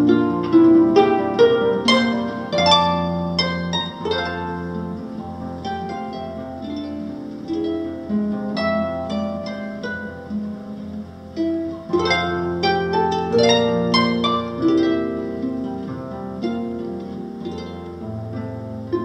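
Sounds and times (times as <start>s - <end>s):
harp playing: 0.0s - 19.0s.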